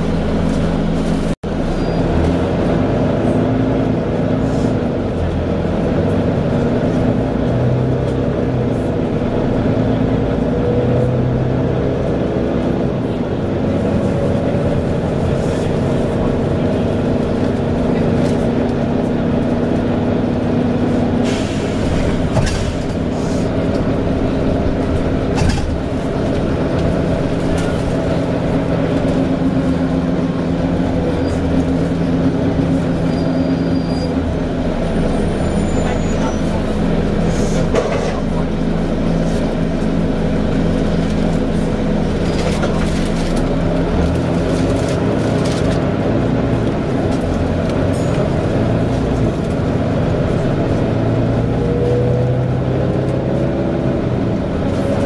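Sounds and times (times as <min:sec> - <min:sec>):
bus engine running: 0:00.0 - 0:55.0
bus body knocks and rattles: 0:21.8 - 0:30.8.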